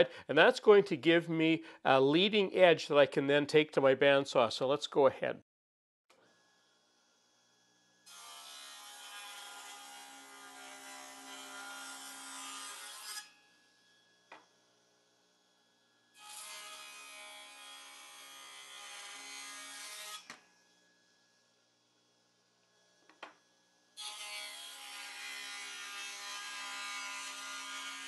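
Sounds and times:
table saw cutting board: 0:08.0 - 0:14.4, 0:16.2 - 0:20.4, 0:24.0 - 0:28.0.

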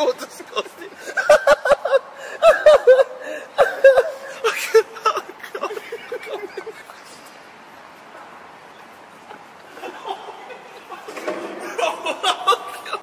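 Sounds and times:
men laughing hard: 0:00.6 - 0:07.4, 0:09.7 - 0:13.0.

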